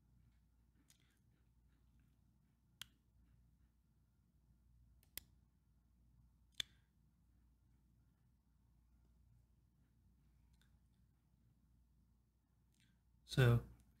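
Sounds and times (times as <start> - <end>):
computer mouse clicks: 5.0 - 5.3, 6.5 - 6.8.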